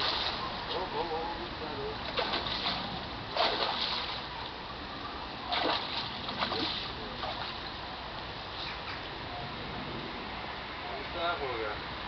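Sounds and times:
fish splashing in water: 0.0s - 0.6s, 2.1s - 4.3s, 5.4s - 7.8s.

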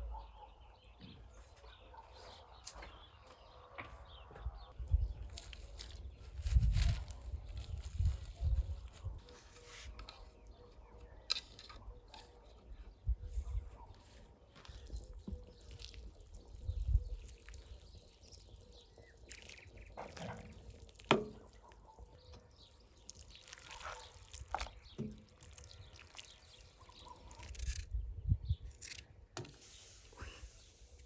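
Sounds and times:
liquid dripping and splashing: 22.8s - 27.0s.

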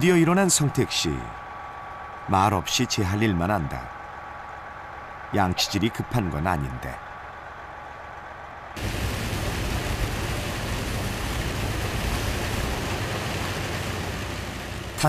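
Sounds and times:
heavy rain on windshield: 8.8s - 15.0s
road noise rumble: 8.8s - 15.0s.

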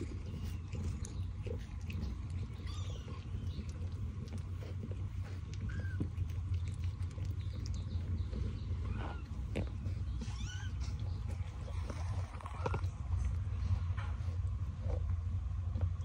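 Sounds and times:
steady low hum: 0.0s - 16.0s
kitten mewing: 0.3s - 4.3s, 8.8s - 11.1s.

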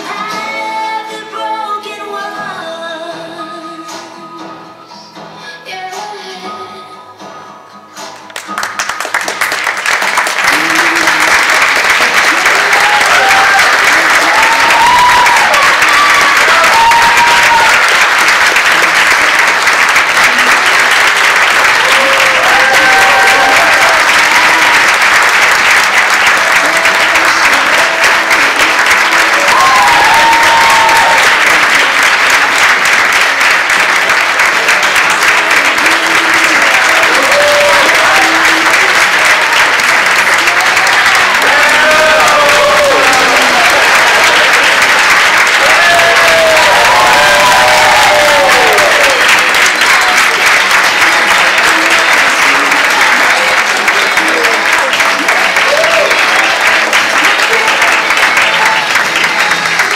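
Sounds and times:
audience applauding: 8.2s - 59.9s
cheers and whoops: 10.5s - 18.3s, 20.9s - 25.3s, 26.5s - 32.7s, 35.8s - 59.9s.

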